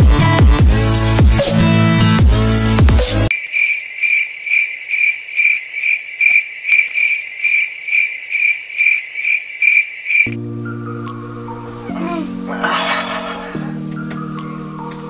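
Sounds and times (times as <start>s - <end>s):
cricket chirping: 3.3s - 10.4s.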